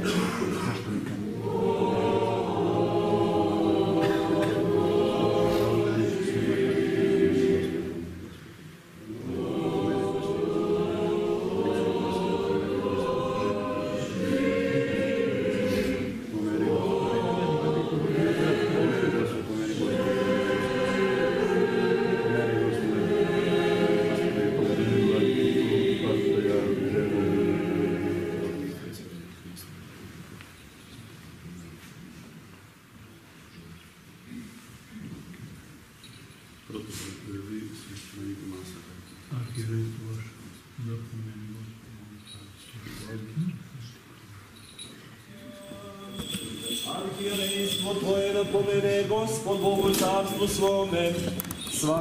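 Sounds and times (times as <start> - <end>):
choir chanting unaccompanied: 1.2 - 29.2, 45.3 - 52.0.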